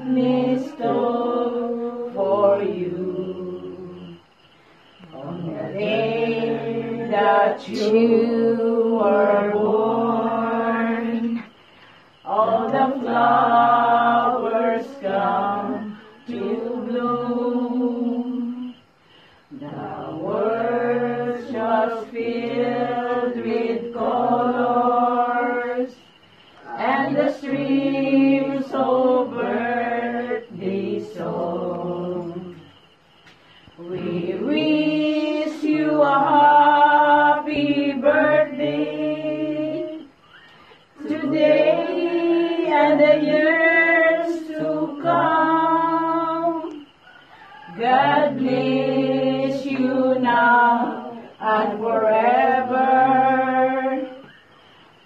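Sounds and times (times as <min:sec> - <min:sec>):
group of voices singing: 0:00.0 - 0:55.0.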